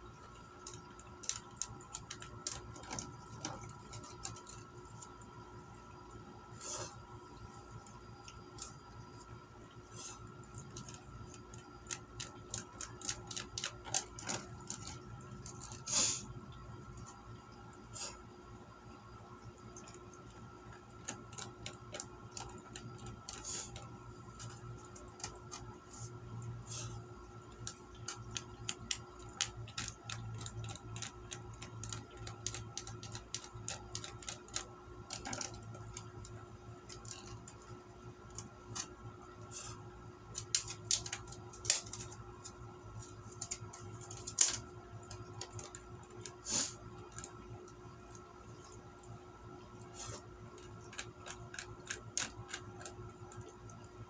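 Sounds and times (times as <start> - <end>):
steady hum: 0.0 - 54.0
chopsticks clicking on plastic pack: 10.6 - 15.8, 27.4 - 37.7.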